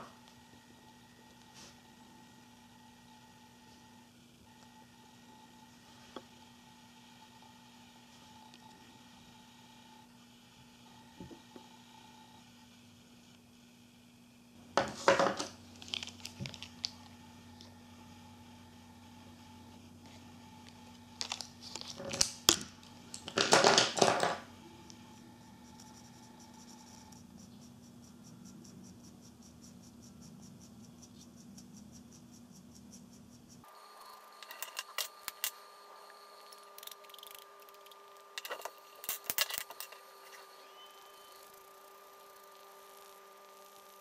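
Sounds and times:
marker pens rustling on table: 14.8 - 17.1, 21.2 - 24.4, 34.4 - 35.5, 36.7 - 40.5.

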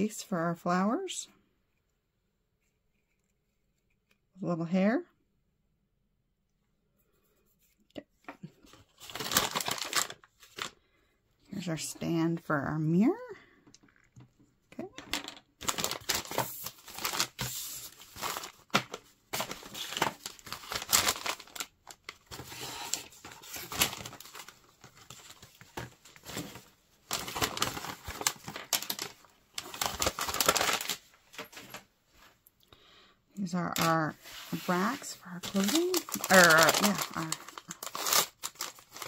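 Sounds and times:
plastic crinkling and rustling: 8.6 - 10.8, 15.1 - 32.4, 33.7 - 39.0
plastic wrappers tearing: 9.0 - 10.7, 15.6 - 31.1, 35.2 - 39.0.

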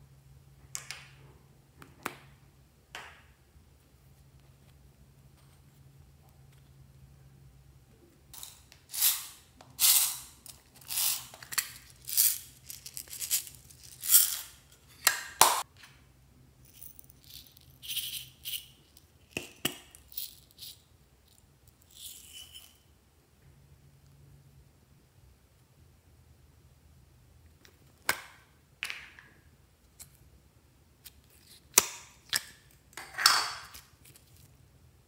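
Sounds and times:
plastic beads rattling: 8.4 - 15.0, 16.7 - 20.8.

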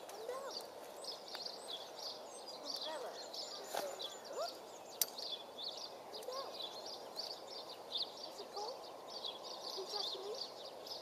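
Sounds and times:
songbirds chirping: 0.0 - 11.0.

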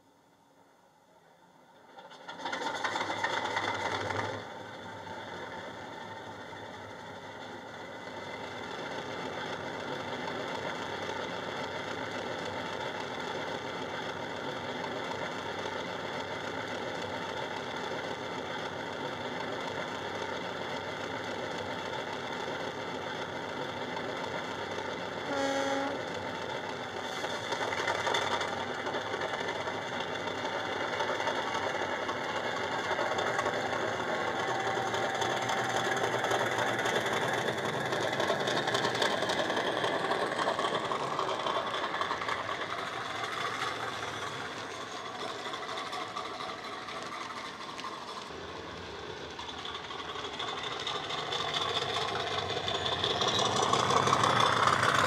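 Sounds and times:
model locomotive diesel engine sound: 0.0 - 55.0
short horn note: 25.3 - 26.0.

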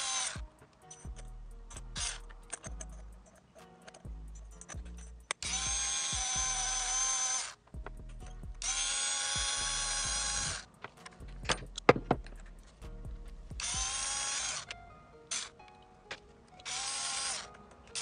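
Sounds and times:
electric screwdriver whine: 0.0 - 0.4, 5.4 - 7.6, 8.6 - 10.6, 13.6 - 14.7, 16.6 - 18.0
small metallic clicks and knocks: 0.0 - 6.4, 10.4 - 18.0.

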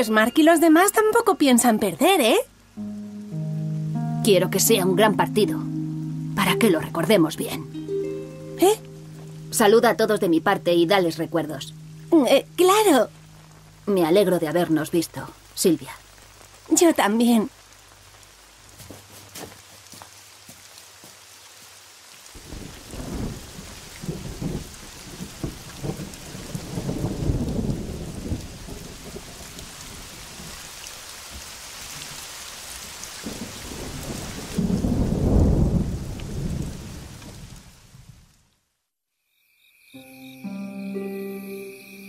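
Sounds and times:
heavy rain: 0.0 - 38.7
thunder rumbling: 22.4 - 30.6, 33.2 - 38.2.

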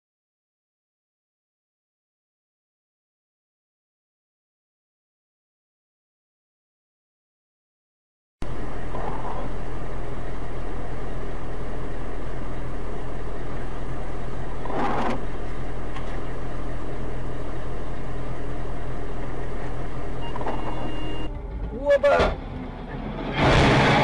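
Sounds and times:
vehicle engine and road noise: 8.4 - 24.0.

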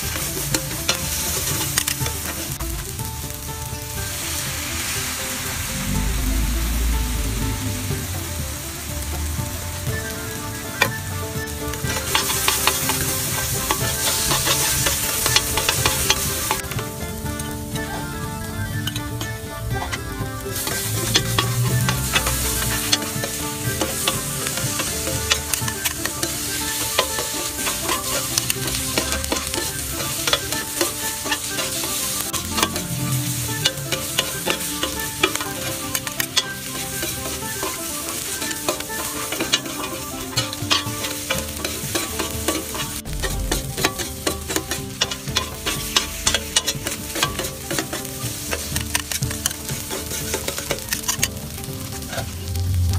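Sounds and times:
metal spatula scraping and clicking: 0.0 - 2.5, 11.8 - 18.0, 19.8 - 52.4
seafood sizzling on a griddle: 0.0 - 52.9.

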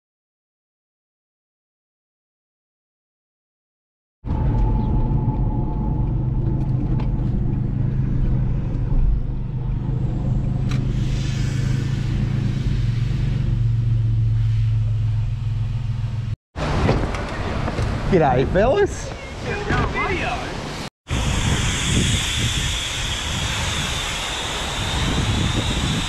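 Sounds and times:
car engine running: 4.3 - 18.0.

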